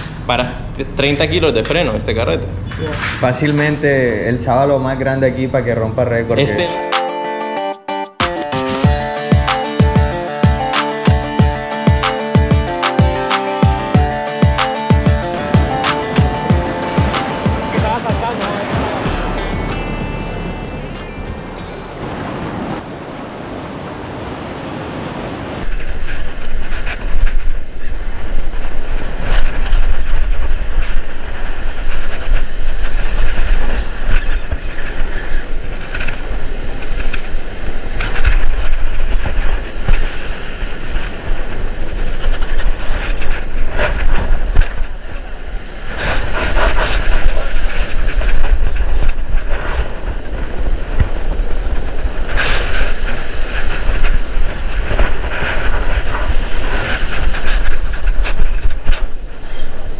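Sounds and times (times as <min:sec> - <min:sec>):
surf crashing: 0:08.4 - 0:59.9
wind rumbling on microphone: 0:15.4 - 0:59.9.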